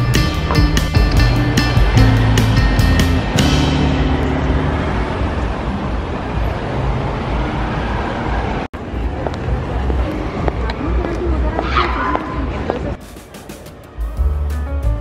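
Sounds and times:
background music: 0:00.0 - 0:05.6, 0:13.0 - 0:15.0
street traffic hum: 0:00.0 - 0:15.0.

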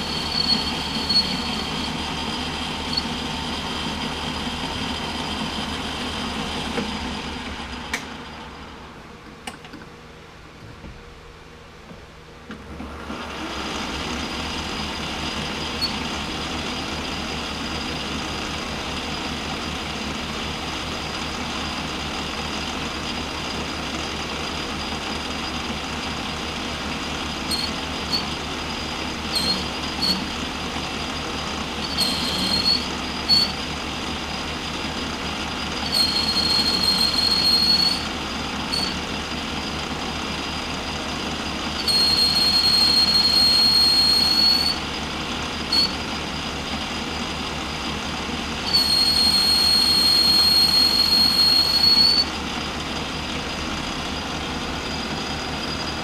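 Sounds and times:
cutting tool squealing: 0:00.0 - 0:03.2, 0:15.7 - 0:16.0, 0:27.4 - 0:28.4, 0:29.2 - 0:30.4, 0:31.7 - 0:33.7, 0:35.8 - 0:39.1, 0:41.7 - 0:44.9, 0:45.7 - 0:46.1, 0:48.6 - 0:52.4
lathe spindle whining: 0:00.0 - 0:08.7, 0:24.2 - 0:56.0.

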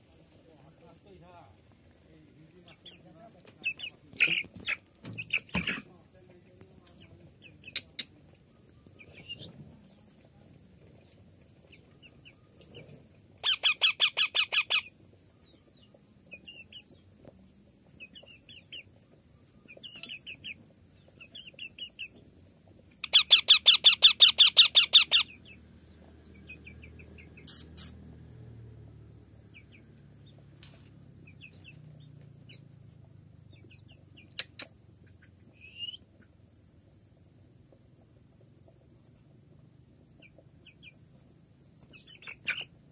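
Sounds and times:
parakeet chick rapid repeated calls: 0:13.4 - 0:14.9, 0:23.0 - 0:25.6, 0:26.4 - 0:28.0
short chirps: 0:27.4 - 0:28.0.

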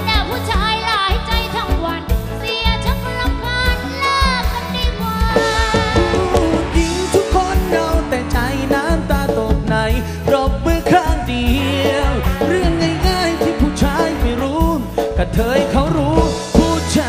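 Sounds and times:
bass: 0:00.0 - 0:17.0
person singing with sliding pitch: 0:04.4 - 0:17.0
drum beat: 0:05.2 - 0:17.0.

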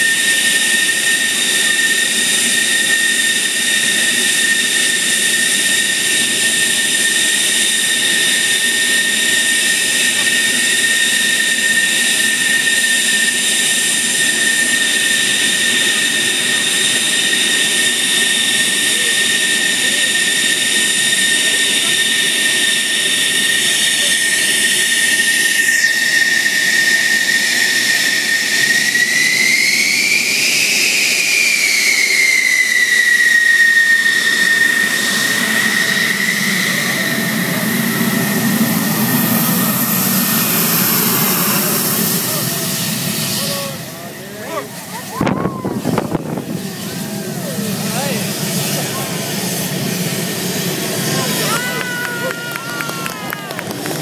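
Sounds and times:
jet engine idling whine: 0:00.0 - 0:54.0.

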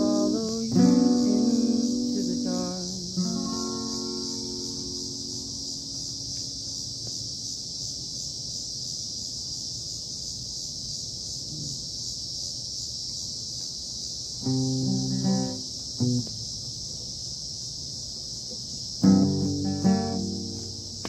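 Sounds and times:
acoustic guitar chord strummed: 0:00.0 - 0:06.5, 0:14.4 - 0:16.4, 0:19.0 - 0:21.0
high insect drone: 0:00.0 - 0:21.0.

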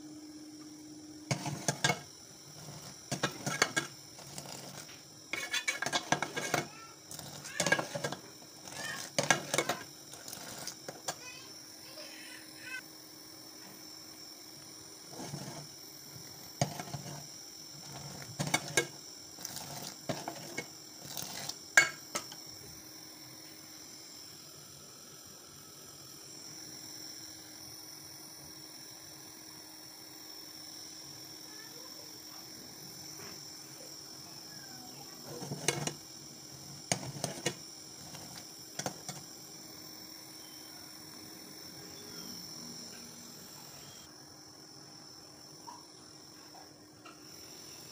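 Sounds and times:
crickets chirring: 0:00.0 - 0:47.9.

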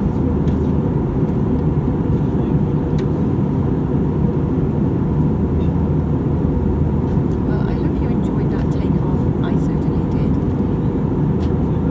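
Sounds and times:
airplane cabin engine rush: 0:00.0 - 0:11.9.

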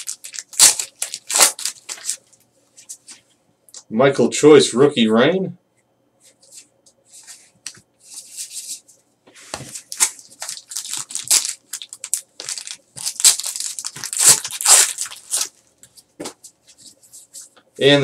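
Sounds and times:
foil wrapper tearing and crinkling: 0:00.0 - 0:02.3, 0:09.8 - 0:15.6.

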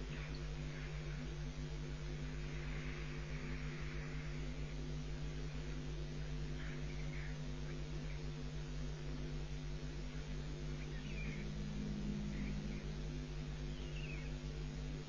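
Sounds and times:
electrical hum and buzz: 0:00.0 - 0:15.0
faint high chirps: 0:10.1 - 0:14.6.

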